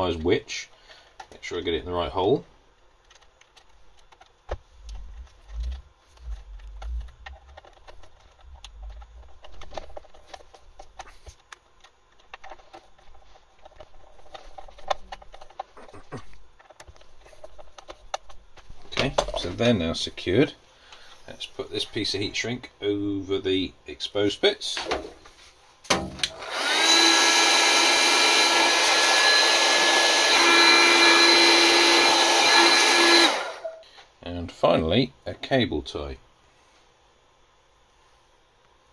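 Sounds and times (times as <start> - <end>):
fan motor whine: 3.0 - 13.1, 25.9 - 33.8
heat gun blowing air: 26.3 - 33.8.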